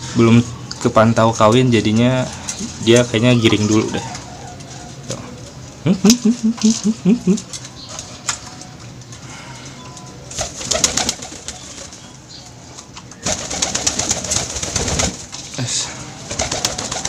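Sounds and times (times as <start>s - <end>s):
pigeon cooing: 3.3s - 8.8s, 16.0s - 17.0s
wings rustling and fluttering: 10.2s - 17.0s.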